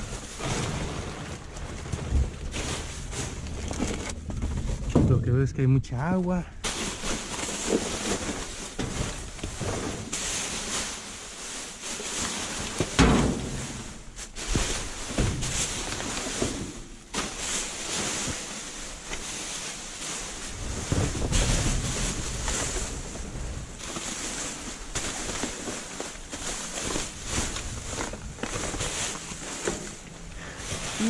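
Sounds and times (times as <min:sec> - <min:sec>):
plastic bags rustling and crinkling: 0:00.0 - 0:31.0
wind rumbling on microphone: 0:20.4 - 0:23.8.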